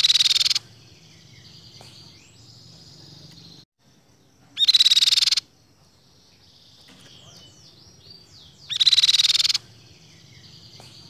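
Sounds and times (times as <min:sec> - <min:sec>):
bird trilling fast: 0:00.0 - 0:00.7, 0:04.6 - 0:05.5, 0:06.7 - 0:10.7
high whistled bird notes: 0:06.4 - 0:11.0.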